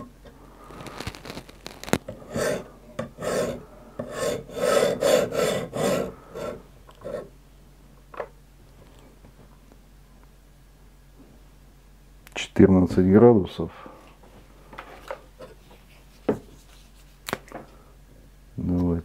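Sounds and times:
sharpening stone rasping on knife: 2.3s - 7.3s.

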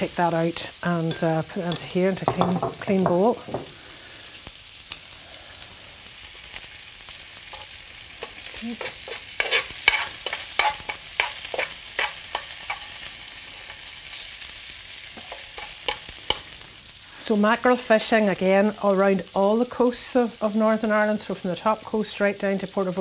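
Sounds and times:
bacon sizzling in frying pan: 0.0s - 23.0s
metal spoon scraping pan: 7.5s - 13.8s, 15.2s - 16.5s.

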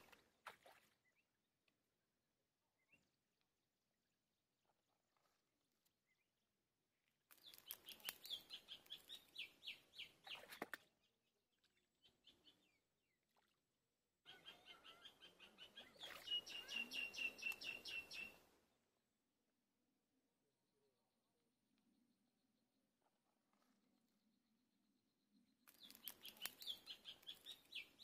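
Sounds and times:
bird chirping rapidly: 14.3s - 18.4s.

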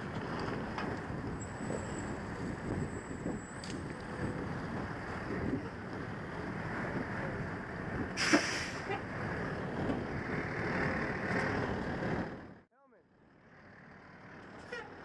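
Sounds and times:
wind noise on microphone: 0.0s - 12.6s
fire engine rumbling: 0.0s - 15.0s.

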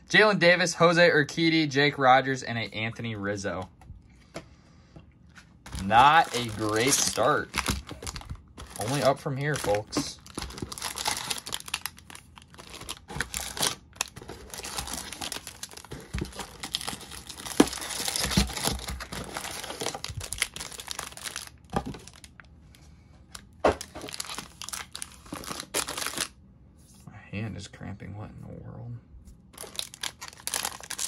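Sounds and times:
wrapper tearing and crinkling: 5.7s - 22.4s, 23.3s - 26.3s, 29.6s - 31.0s.

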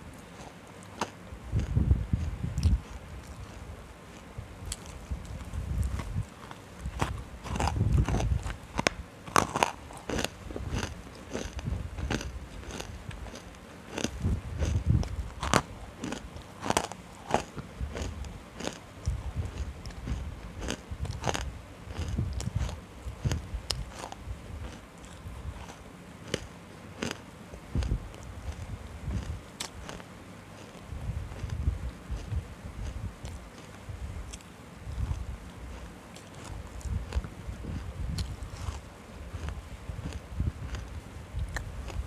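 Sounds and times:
crackly crunches: 0.0s - 42.0s
chewing thuds: 0.4s - 30.0s.

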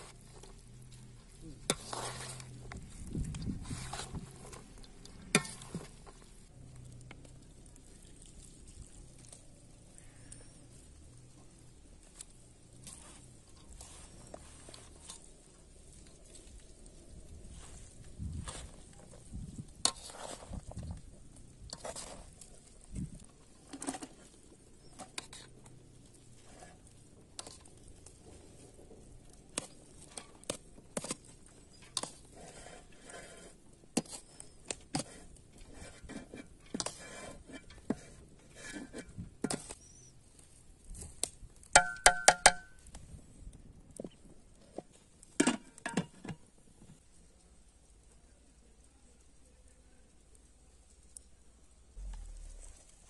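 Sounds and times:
rice rustling as mixed by hand: 0.0s - 41.5s, 50.4s - 53.0s
metal vessels clicking and knocking: 41.7s - 42.8s, 45.4s - 46.4s.

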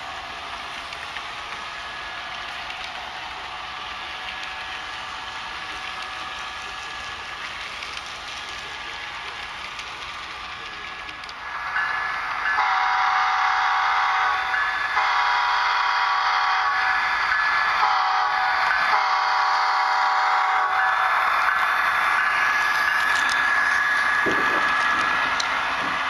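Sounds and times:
model train horn blasts: 12.6s - 14.4s, 15.0s - 16.8s, 17.8s - 20.7s.

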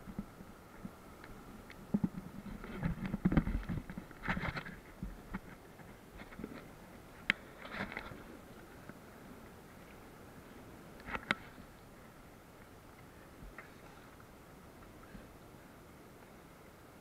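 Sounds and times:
river water washing: 3.5s - 17.0s.

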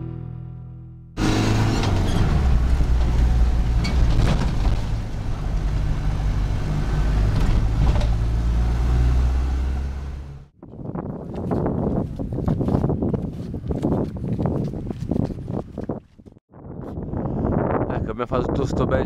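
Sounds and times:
engine running under load: 1.2s - 10.5s
knocks and rattles from bumpy road: 1.3s - 10.4s.

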